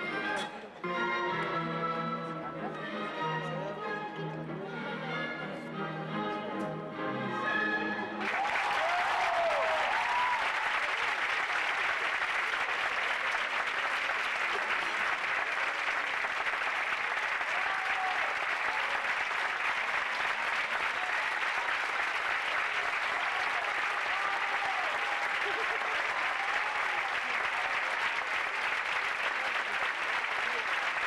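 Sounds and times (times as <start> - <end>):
ballet music: 0.0 - 8.2
audience applause: 8.2 - 31.0.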